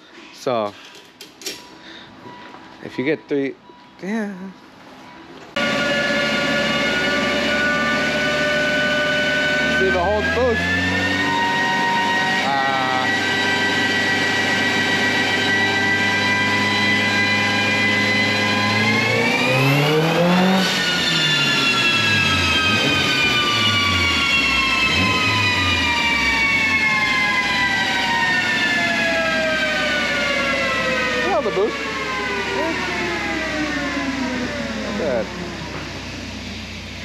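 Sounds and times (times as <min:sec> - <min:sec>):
car engine revving on dyno: 0:05.6 - 0:37.0
dyno rollers winding down: 0:05.6 - 0:37.0.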